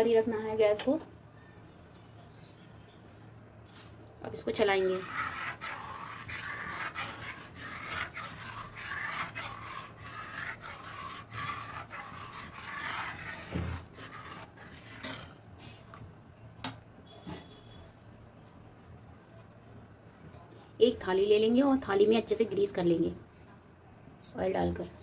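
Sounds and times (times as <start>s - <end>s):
spoon stirring batter in pot: 4.4s - 16.0s.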